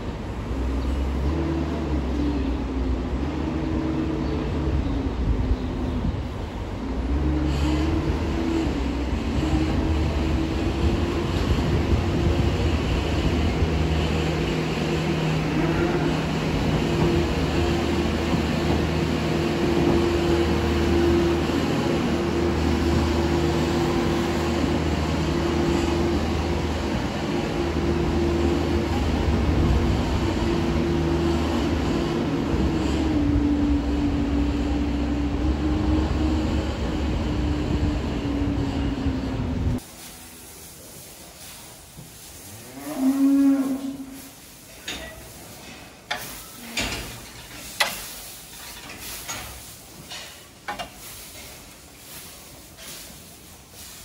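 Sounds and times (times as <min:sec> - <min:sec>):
loader engine running: 0:00.0 - 0:39.9.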